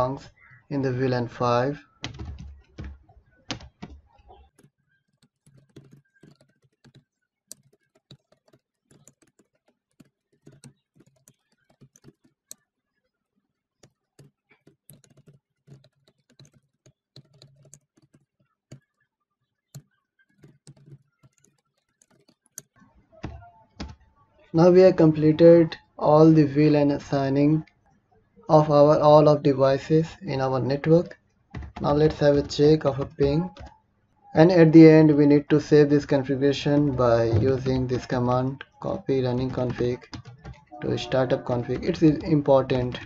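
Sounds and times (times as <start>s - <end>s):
computer keyboard typing: 1.9s - 12.6s, 13.8s - 18.9s, 19.7s - 24.2s, 30.7s - 33.8s, 34.8s - 43.0s.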